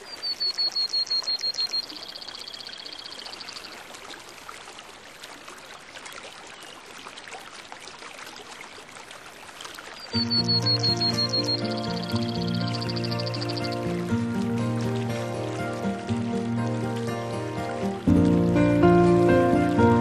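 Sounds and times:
running water rushing: 0.0 - 20.0
bird trilling: 10.2 - 13.9.

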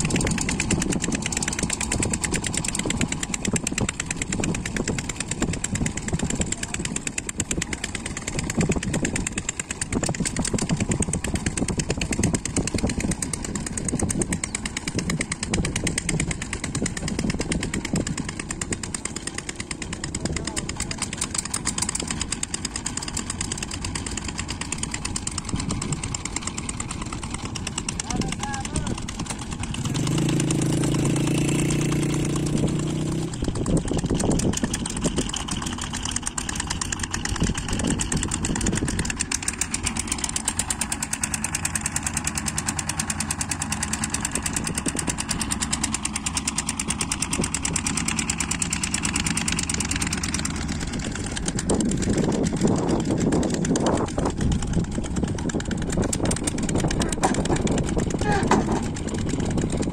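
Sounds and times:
engine running: 0.0 - 59.9
voices: 19.0 - 22.3, 27.2 - 29.4.

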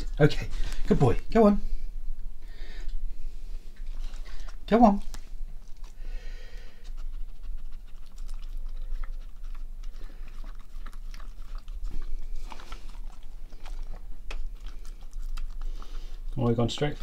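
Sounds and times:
dog chewing: 3.6 - 17.0.

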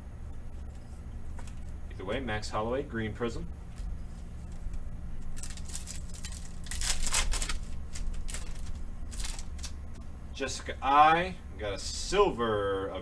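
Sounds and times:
steady low hum: 0.0 - 13.0
foil wrapper crinkling: 5.2 - 9.8.

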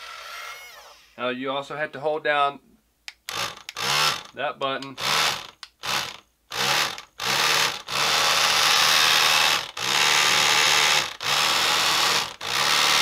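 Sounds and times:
small electric motor whirring: 3.3 - 4.3, 5.0 - 13.0
ratcheting clutch clicks: 4.9 - 13.0.

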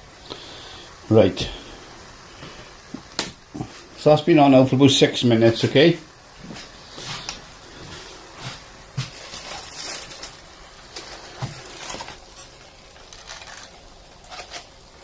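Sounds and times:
foil crinkling: 8.0 - 15.0.

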